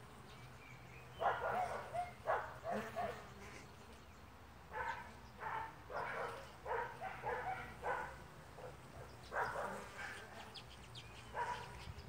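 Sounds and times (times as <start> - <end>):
dog barking: 1.2 - 3.2, 4.7 - 10.5, 11.3 - 11.7.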